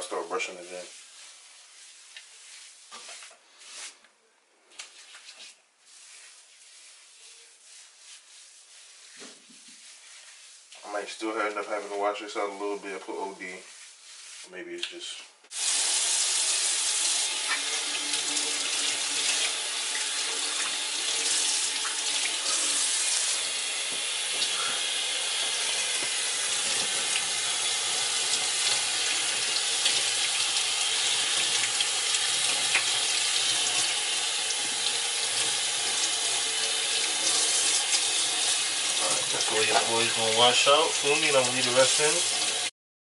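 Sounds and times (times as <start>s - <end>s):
water splashing over hair: 37.0s - 42.7s.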